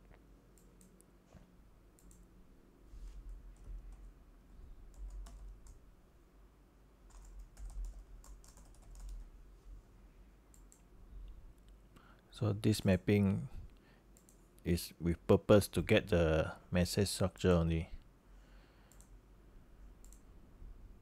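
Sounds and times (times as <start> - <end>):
faint typing on keyboard: 0.0 - 2.4, 3.2 - 4.2, 4.8 - 5.9, 7.0 - 9.4, 10.4 - 12.3, 13.1 - 14.7, 18.8 - 19.2, 19.8 - 20.4.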